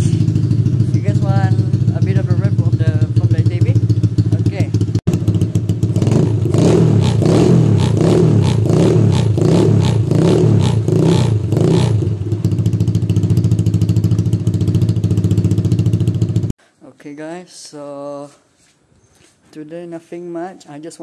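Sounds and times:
atv engine idling and revving: 0.0s - 16.6s.

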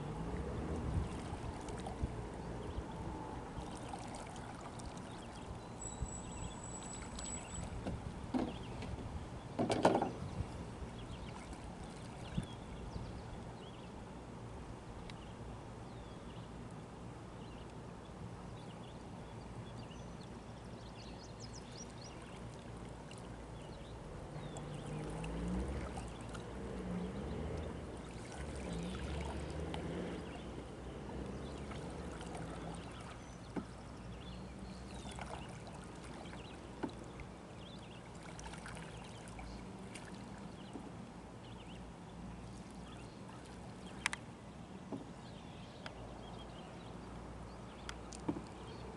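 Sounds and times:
paddle splashing in water: 0.0s - 2.7s, 3.4s - 12.8s, 21.5s - 45.2s
low wavering hum: 0.0s - 9.5s, 10.1s - 44.6s.

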